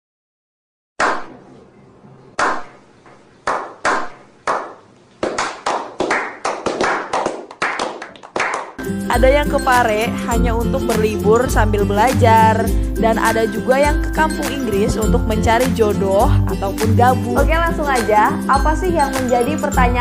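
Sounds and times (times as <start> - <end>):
men slow clapping: 3.5 - 8.8.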